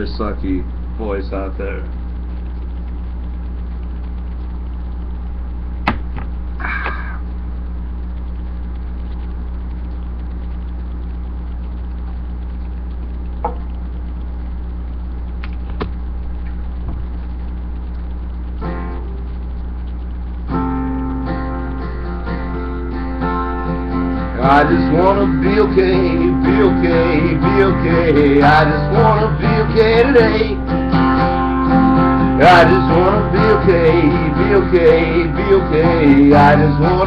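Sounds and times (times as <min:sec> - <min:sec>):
steady low hum: 0:00.0 - 0:37.0
acoustic guitar strummed chords: 0:18.6 - 0:19.2, 0:20.5 - 0:37.0.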